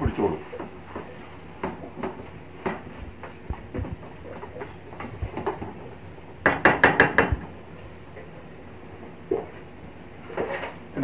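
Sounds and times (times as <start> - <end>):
sharp knocks: 6.4 - 7.5.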